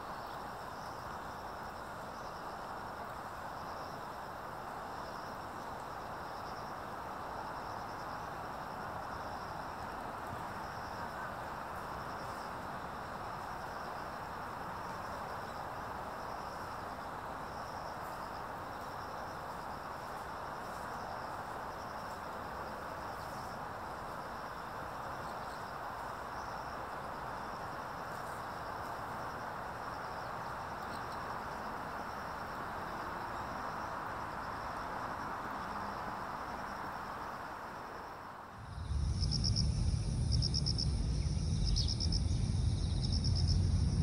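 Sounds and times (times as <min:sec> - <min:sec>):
rushing background noise: 0:06.9 - 0:44.0
insect trilling: 0:38.6 - 0:44.0.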